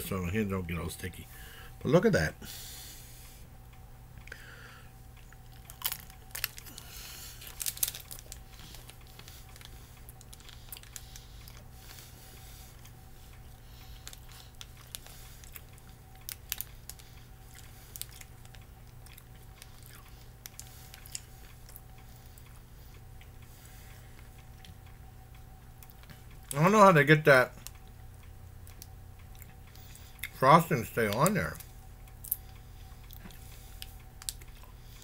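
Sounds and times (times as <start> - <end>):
person chewing crunchy wafer: 5.2 - 12.1, 12.7 - 22.7.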